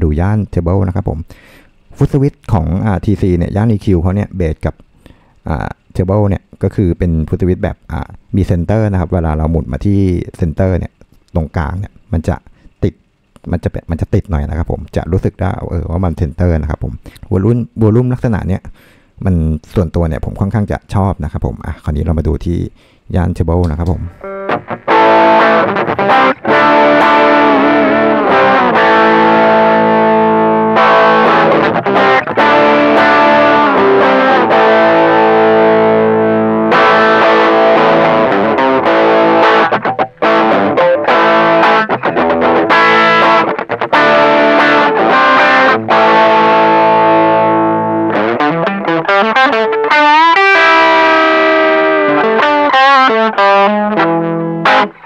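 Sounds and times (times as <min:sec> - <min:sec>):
distorted electric guitar: 0:23.7 - 0:55.0.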